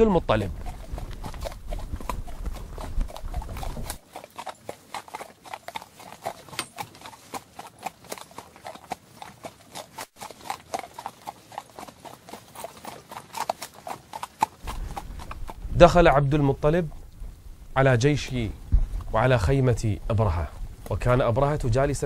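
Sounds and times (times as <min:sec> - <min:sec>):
horse hooves clopping: 0:00.0 - 0:22.0
low rumble: 0:14.6 - 0:22.0.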